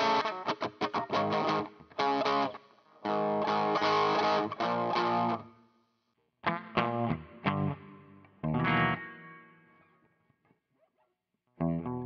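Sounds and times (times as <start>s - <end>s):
distorted electric guitar: 0.0s - 5.4s, 6.4s - 9.8s.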